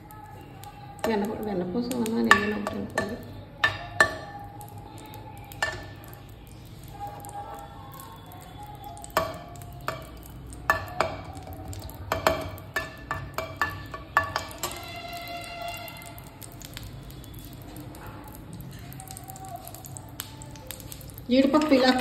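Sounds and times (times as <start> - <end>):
faint sizzle: 0.0 - 22.0
metal spoon clinking against pan: 1.0 - 6.3, 6.9 - 16.8.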